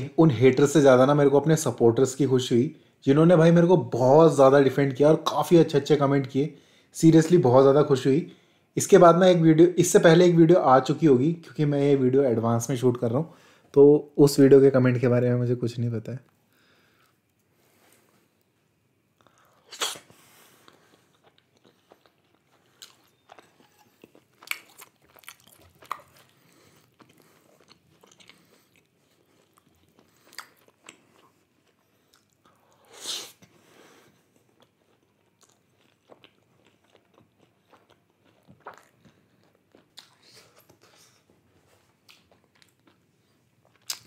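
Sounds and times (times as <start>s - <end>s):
man chewing and biting: 19.2s - 33.3s, 34.2s - 41.2s, 42.0s - 44.0s.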